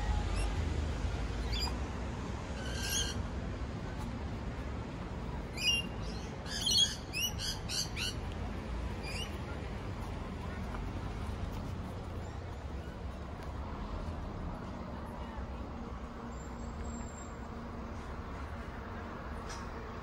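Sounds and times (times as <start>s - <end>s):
bird chirping calls: 2.6s - 3.2s, 5.5s - 8.2s.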